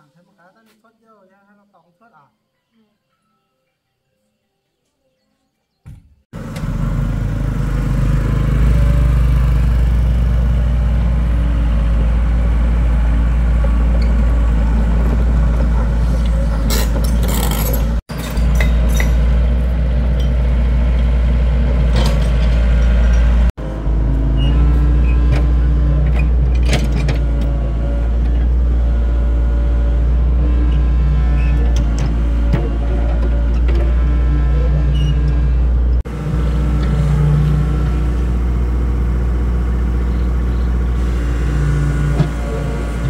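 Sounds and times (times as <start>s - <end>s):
diesel engine running: 6.4s - 43.0s
metallic clanks and knocks: 21.9s - 23.5s.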